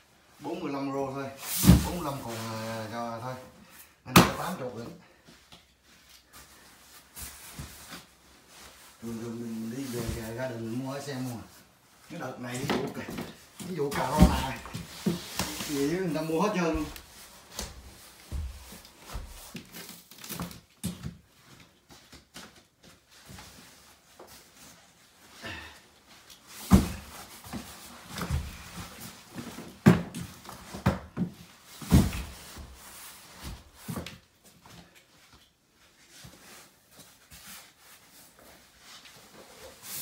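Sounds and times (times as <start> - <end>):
cardboard scuffs: 12.8 - 20.0
cardboard boxes thumping: 13.9 - 15.5, 29.8 - 32.4.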